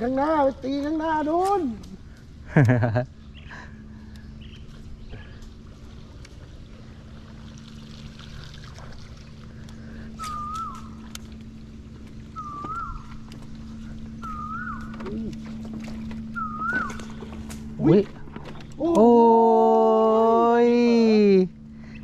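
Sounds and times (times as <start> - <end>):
steady low hum: 0.0 - 22.0
bird whistled call: 10.1 - 11.1, 12.3 - 13.3, 14.2 - 15.1, 16.3 - 17.2.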